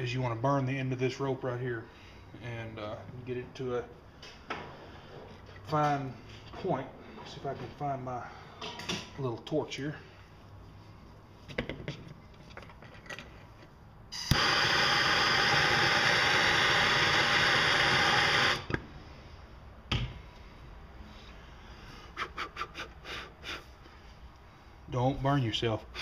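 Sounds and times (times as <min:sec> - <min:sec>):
torch flame hissing: 0:14.2 - 0:18.8
torch lighting click: 0:14.2 - 0:18.8.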